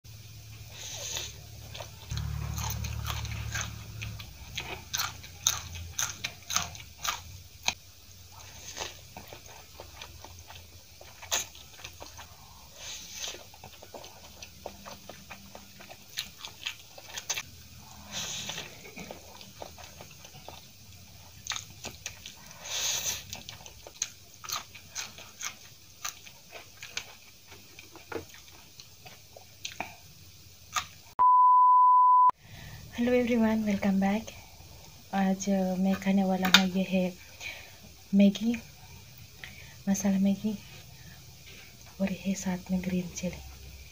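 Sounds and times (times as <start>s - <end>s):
chewing noodles: 0.9s - 30.0s
crunchy bites: 1.1s - 7.8s.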